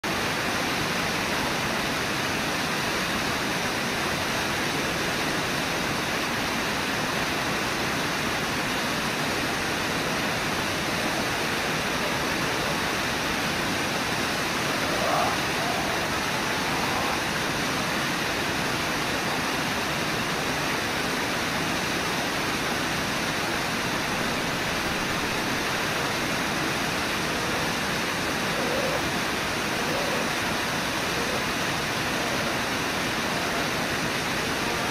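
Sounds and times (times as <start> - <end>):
fast river water rushing: 0.0 - 34.9
low waterfall: 0.0 - 34.9
faint call: 11.0 - 18.0, 23.9 - 34.9.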